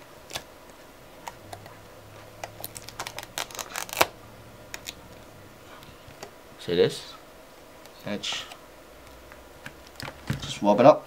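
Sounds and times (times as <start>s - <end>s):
aluminium foil crinkling: 2.4s - 5.0s.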